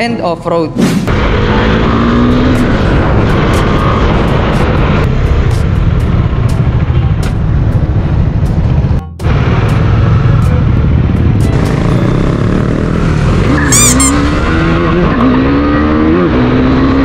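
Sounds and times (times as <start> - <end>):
motorcycle engine running: 1.3 - 16.4.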